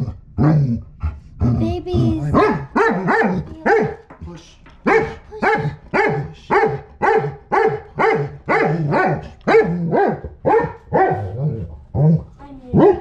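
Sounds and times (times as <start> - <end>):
dog barking through a muzzle: 2.4 - 4.0, 4.8 - 11.3.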